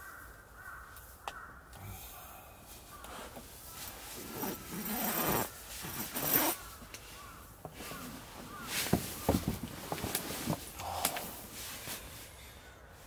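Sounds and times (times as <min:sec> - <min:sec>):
fabric rustling: 0:03.7 - 0:10.8
zipper being pulled: 0:04.2 - 0:06.7.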